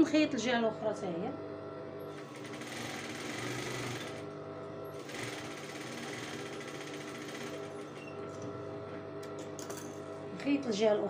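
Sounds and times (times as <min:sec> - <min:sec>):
sewing machine stitching: 0:02.2 - 0:04.2, 0:05.0 - 0:08.2.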